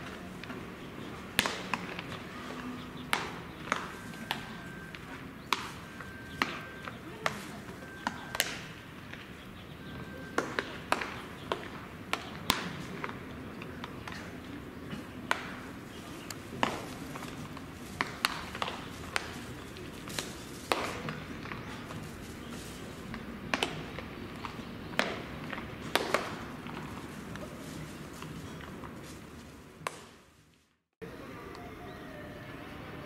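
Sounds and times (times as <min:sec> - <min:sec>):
baseballs popping into gloves: 0:10.4 - 0:29.0.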